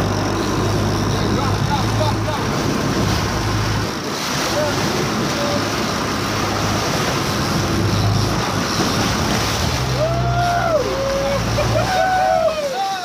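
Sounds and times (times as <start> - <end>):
low engine hum: 0.0 - 12.8
sea noise: 0.0 - 13.0
wind: 0.0 - 13.0
person whooping: 10.0 - 13.0.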